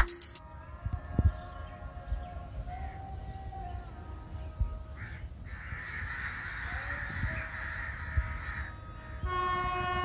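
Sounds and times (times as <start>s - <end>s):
crows cawing: 5.0s - 8.8s
locomotive horn blast: 9.2s - 10.0s.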